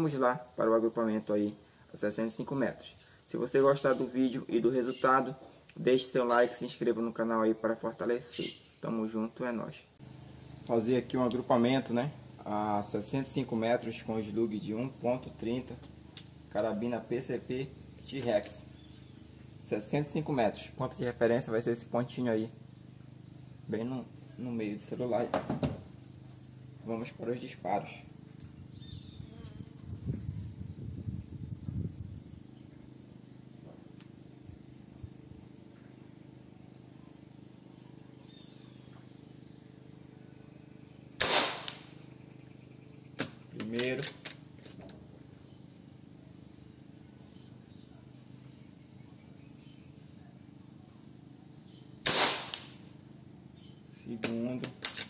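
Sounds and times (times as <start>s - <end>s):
air rifle shot: 41.2s - 42.0s, 52.0s - 52.8s.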